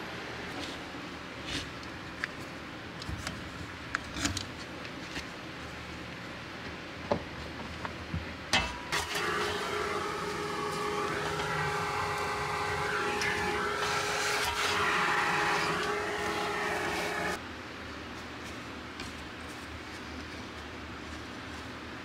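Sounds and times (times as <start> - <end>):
machine motor humming and whining: 8.9 - 17.4.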